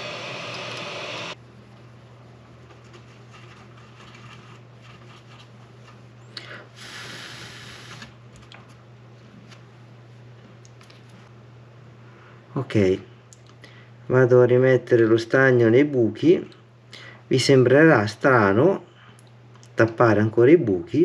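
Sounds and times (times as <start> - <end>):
hot air station hissing: 0.0 - 1.4, 6.4 - 8.2
low steady hum: 0.0 - 21.0.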